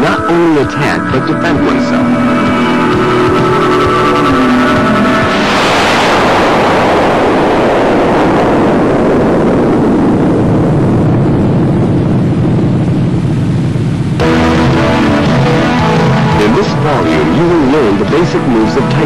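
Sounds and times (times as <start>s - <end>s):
music: 0.0s - 7.2s, 14.2s - 19.0s
loud rushing rumble: 0.0s - 19.0s.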